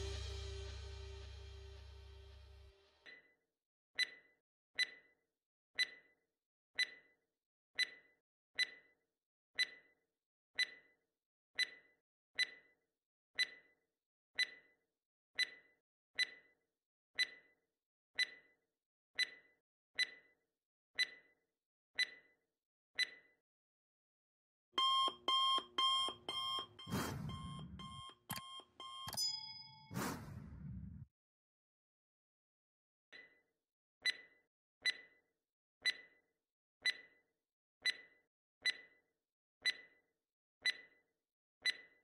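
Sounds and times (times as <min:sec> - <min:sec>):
intro music: 0:00.0 - 0:02.6
countdown timer ticking: 0:24.8 - 0:30.7.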